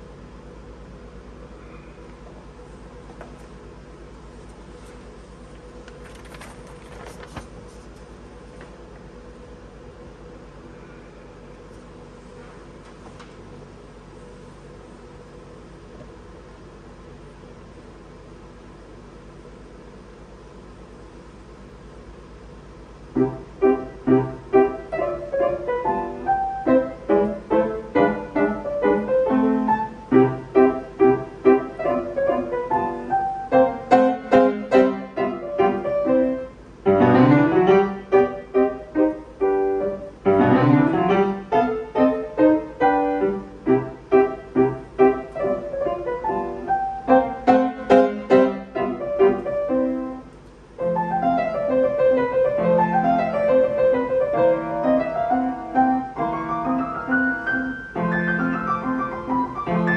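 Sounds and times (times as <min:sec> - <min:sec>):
upright piano playing: 0:23.1 - 0:59.9.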